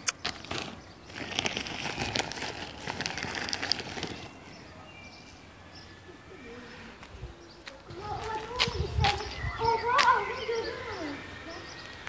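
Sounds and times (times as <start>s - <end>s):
plastic bag crinkling: 0.2s - 4.6s.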